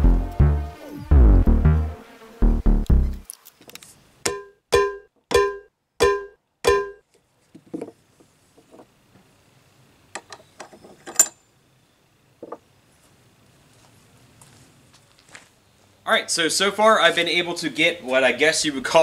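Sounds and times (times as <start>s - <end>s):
wooden mallet knocking: 4.3s - 7.0s.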